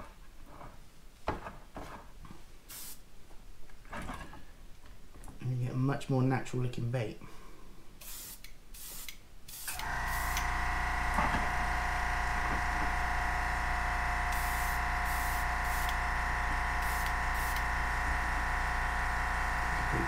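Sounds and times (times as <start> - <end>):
airbrush spraying hiss: 2.7 - 3.0, 8.0 - 10.4, 14.3 - 16.0, 16.8 - 17.7
airbrush compressor motor humming: 9.7 - 20.0.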